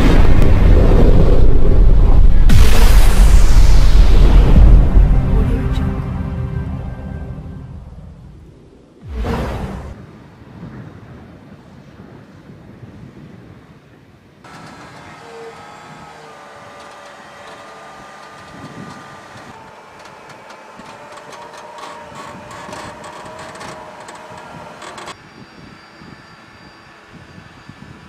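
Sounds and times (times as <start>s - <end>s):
motor grader mechanical whine: 1.8s - 10.0s, 14.5s - 28.0s
soil and stones crackling under blade: 16.6s - 25.2s.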